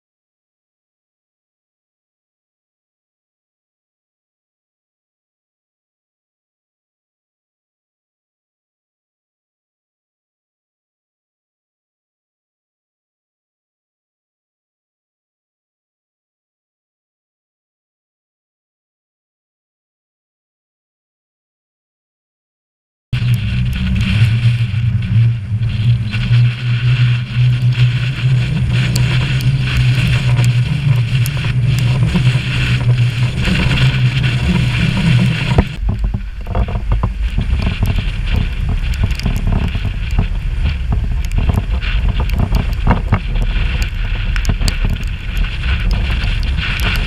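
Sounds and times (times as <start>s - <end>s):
strong wind buffeting microphone: 23.2s - 47.0s.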